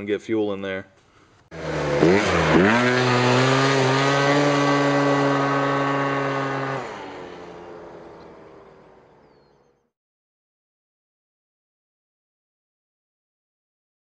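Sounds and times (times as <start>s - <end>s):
scooter engine revving: 1.5s - 9.9s.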